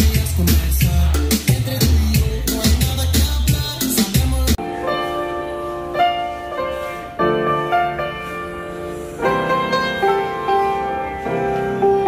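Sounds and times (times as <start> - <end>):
instrumental piano-like music: 4.5 - 12.0.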